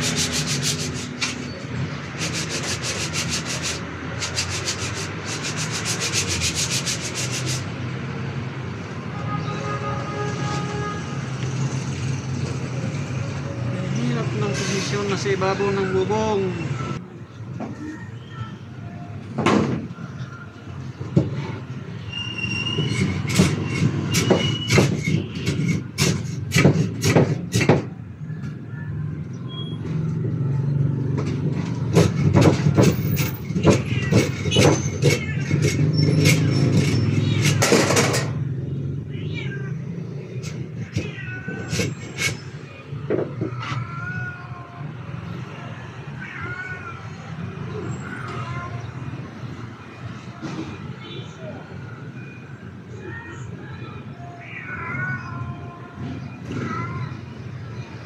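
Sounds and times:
hammer knocking on boards: 0:24.2 - 0:27.9.

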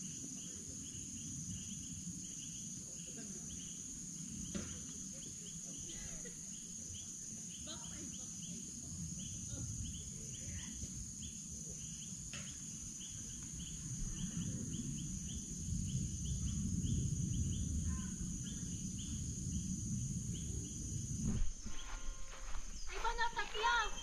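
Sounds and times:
insect chirps: 0:00.0 - 0:24.0
insects droning: 0:00.0 - 0:24.0
low rumbling: 0:13.6 - 0:24.0.

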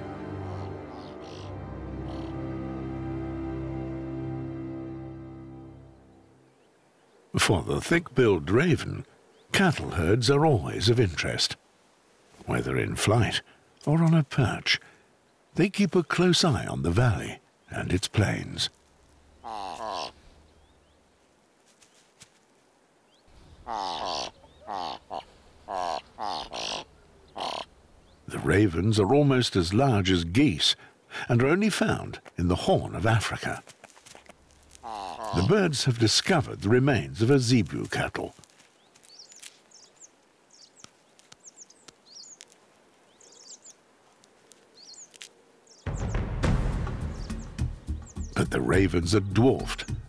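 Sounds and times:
ravens croaking: 0:00.0 - 0:02.9, 0:07.0 - 0:20.9, 0:23.2 - 0:46.3
faint outdoor hiss: 0:00.0 - 0:50.0
small birds chirping: 0:00.4 - 0:02.4, 0:05.6 - 0:50.0.

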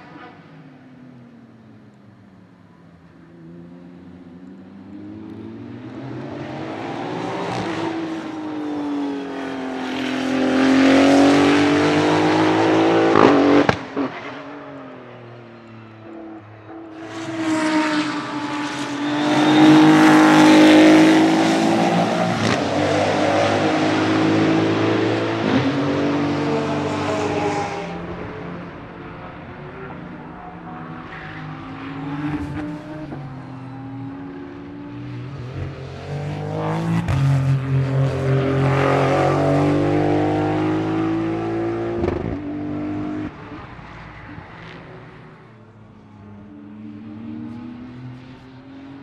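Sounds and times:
race car engine accelerating: 0:17.0 - 0:28.2.

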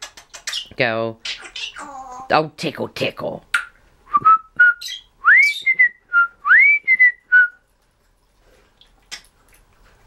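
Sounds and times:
parrot whistling a tune: 0:04.1 - 0:07.6.

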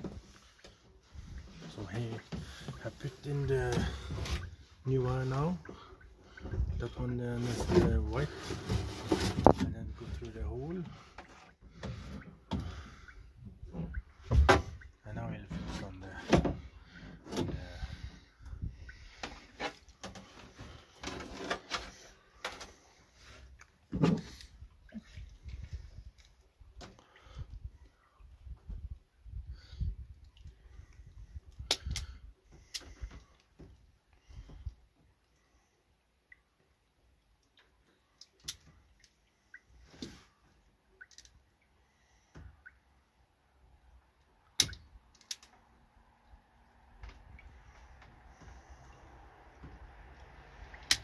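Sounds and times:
handling noise knocks and rustling: 0:07.4 - 0:10.3.

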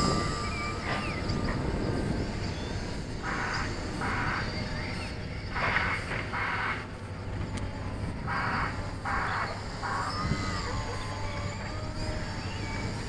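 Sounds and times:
low rumbling noise: 0:00.0 - 0:13.0
model plane motor whine: 0:09.1 - 0:13.0.

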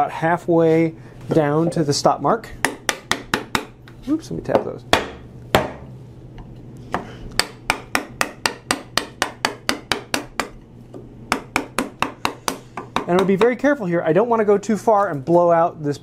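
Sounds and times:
mallet tapping chisel into wood: 0:02.6 - 0:03.8, 0:07.4 - 0:10.6, 0:11.3 - 0:13.5.

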